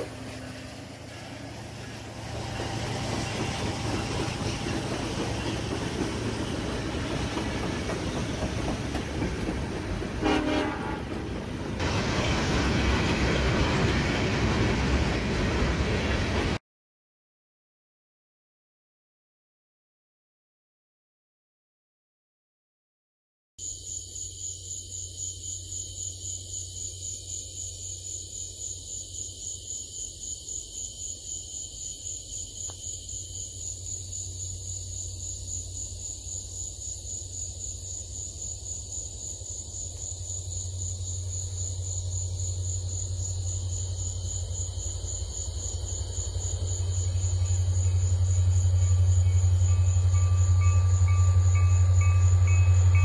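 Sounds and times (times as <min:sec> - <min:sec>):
train rumble: 0:00.0 - 0:16.6, 0:30.1 - 0:53.0
insects trilling: 0:23.6 - 0:53.0.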